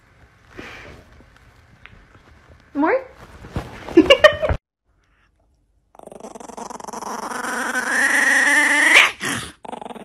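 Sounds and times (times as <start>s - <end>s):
puppy growling: 5.9s - 10.0s.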